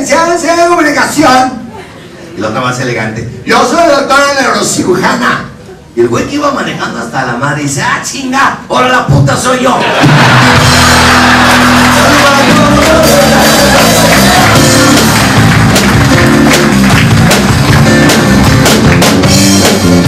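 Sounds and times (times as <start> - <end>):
band playing upbeat music: 9.9 - 20.0
bass notes: 10.0 - 20.0
drum beat: 10.0 - 20.0.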